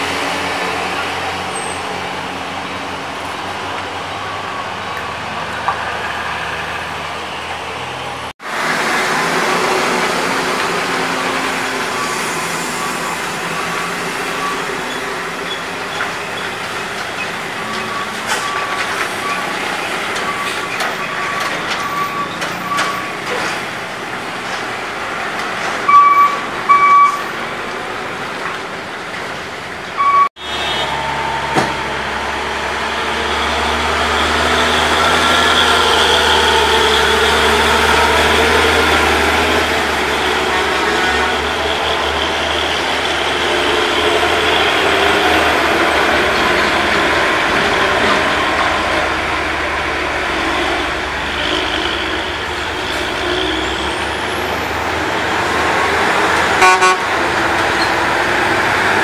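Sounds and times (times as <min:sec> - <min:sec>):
diesel truck engines under load: 0:00.0 - 0:59.0
short high beeps: 0:25.9 - 0:27.2, 0:30.0 - 0:32.0
horn blasts: 0:30.0 - 0:37.7, 0:40.0 - 0:45.2, 0:56.4 - 0:57.4.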